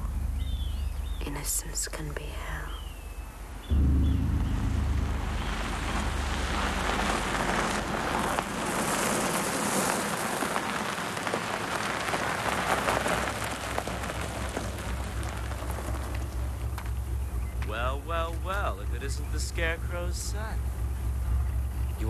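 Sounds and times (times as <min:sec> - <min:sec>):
low engine hum: 0:00.0 - 0:22.0
tyres crunching over gravel: 0:05.5 - 0:21.9.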